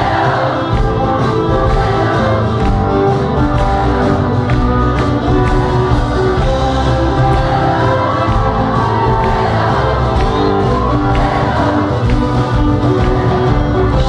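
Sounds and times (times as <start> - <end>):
piano: 0.0 - 14.0
steady beat: 0.0 - 14.0.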